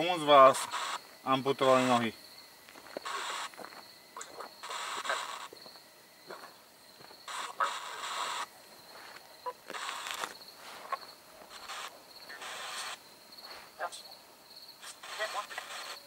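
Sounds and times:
radio static bursts: 0:00.0 - 0:08.6, 0:09.4 - 0:13.0, 0:14.8 - 0:16.0.

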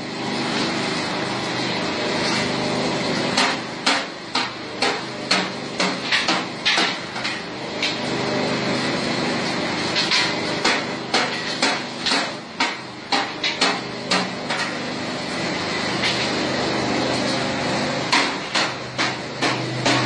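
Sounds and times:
machinery humming: 0:13.8 - 0:20.0.

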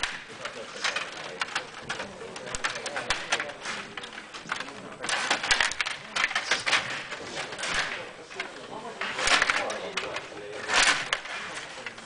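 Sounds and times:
table hockey rods clicking and rattling: 0:00.0 - 0:12.0.

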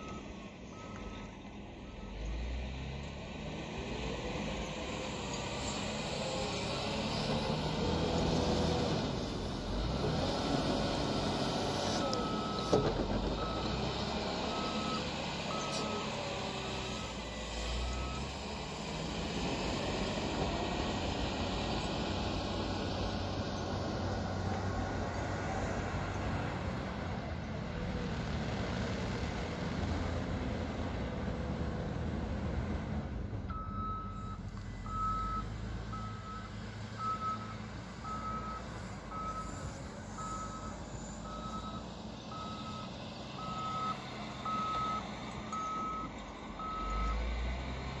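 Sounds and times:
reversing alarm beeps: 0:00.0 - 0:01.3, 0:14.5 - 0:16.1, 0:33.5 - 0:39.6, 0:40.2 - 0:47.2
vehicle engine under load: 0:00.0 - 0:48.0.

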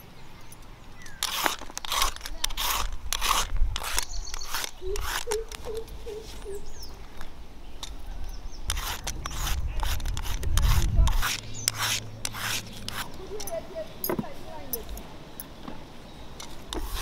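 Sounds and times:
vegetable peeler scraping gourd: 0:01.1 - 0:05.9, 0:08.7 - 0:13.5, 0:16.7 - 0:17.0.

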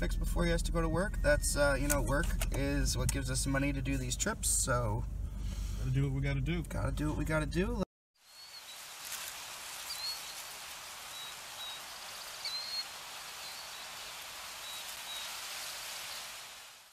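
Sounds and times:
outdoor ambience hiss: 0:01.4 - 0:16.9
high bird chirps: 0:09.8 - 0:15.4.

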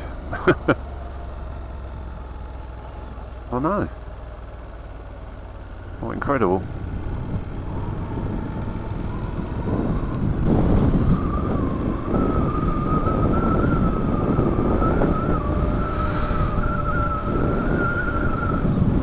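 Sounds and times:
motorcycle engine and wind rumble: 0:00.0 - 0:19.0
wavering high whine: 0:06.6 - 0:19.0.

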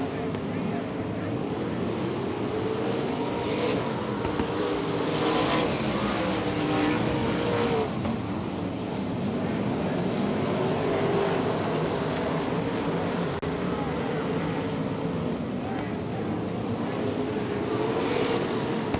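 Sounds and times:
racing car engines rising and falling: 0:00.0 - 0:18.9.

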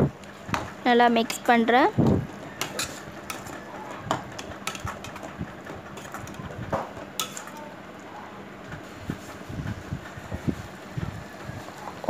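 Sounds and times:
metal spoon scraping steel pot: 0:02.6 - 0:03.5.

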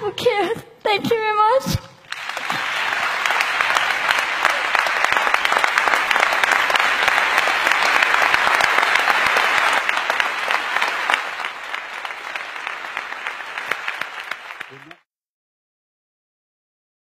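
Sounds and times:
audience applauding: 0:02.0 - 0:15.1.

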